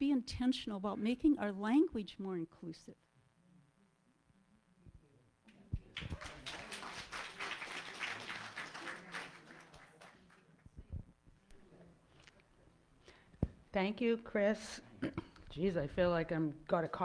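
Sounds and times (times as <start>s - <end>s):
congregation applauding: 5.8s - 10.6s.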